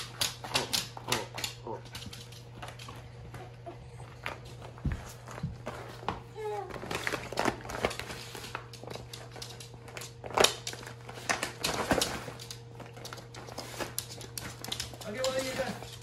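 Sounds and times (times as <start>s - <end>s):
plastic crinkling: 4.4s - 16.0s.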